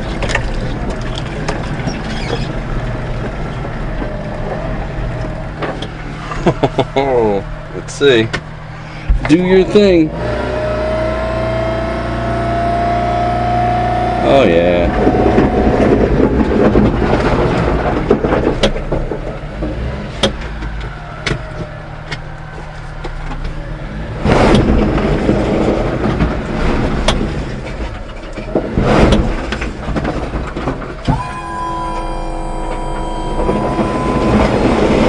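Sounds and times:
truck engine running: 30.7 - 35.0
steady whine: 31.0 - 35.0.

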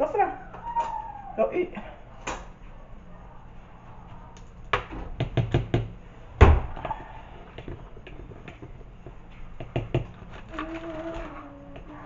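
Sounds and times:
taps of household things: 4.8 - 10.2
heavy thump: 6.4 - 6.8.

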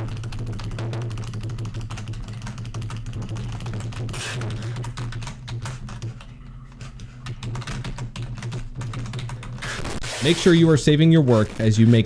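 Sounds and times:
keyboard and mouse clicking: 0.0 - 6.3.

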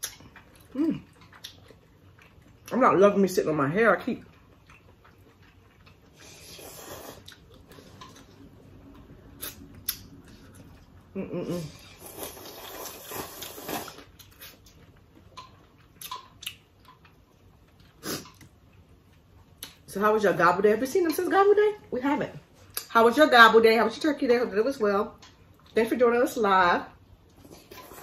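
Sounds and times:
chewing and finger-licking: 0.0 - 2.7, 4.2 - 11.0, 13.7 - 19.8
noodle slurp: 6.1 - 8.1, 11.7 - 14.6.

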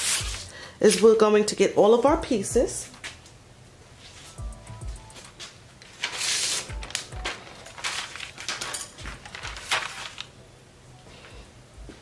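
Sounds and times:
paper rustling and crinkling: 5.4 - 10.4.

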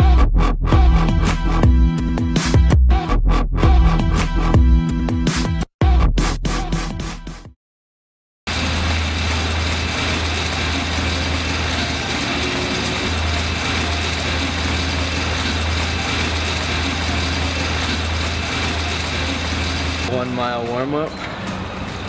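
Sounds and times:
air bike fan whirring: 8.5 - 22.0.

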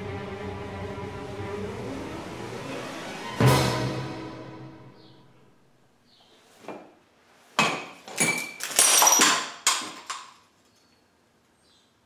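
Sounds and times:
coffee cup smashing: 7.7 - 10.2.

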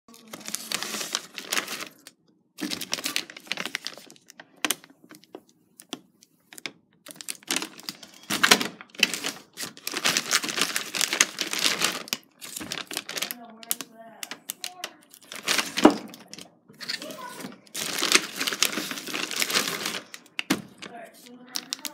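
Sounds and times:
plastic wrap crinkling: 0.1 - 21.9.

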